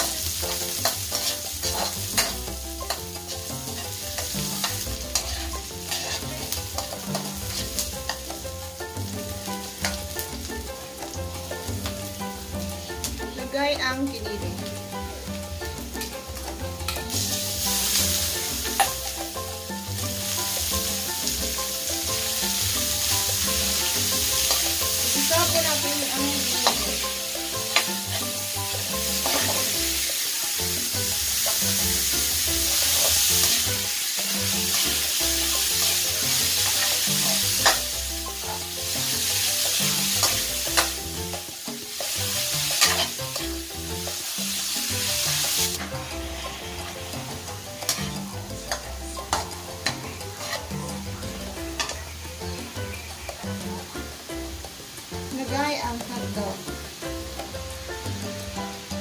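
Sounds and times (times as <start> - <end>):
meat sizzling in a wok: 0.0 - 59.0
metal spatula clicking on pan: 0.8 - 3.2.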